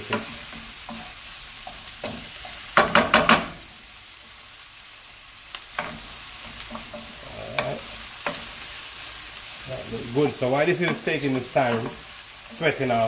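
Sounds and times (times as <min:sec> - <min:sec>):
vegetables sizzling in frying pan: 0:00.0 - 0:13.0
spoon knocking against pan: 0:02.0 - 0:03.6.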